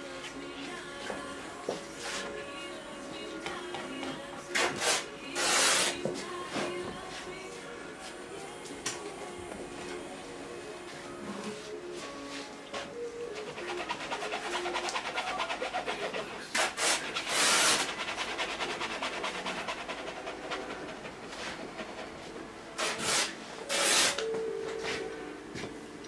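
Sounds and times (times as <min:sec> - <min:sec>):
paint tool scraping canvas: 0:02.0 - 0:02.3, 0:04.6 - 0:06.1, 0:13.3 - 0:24.3.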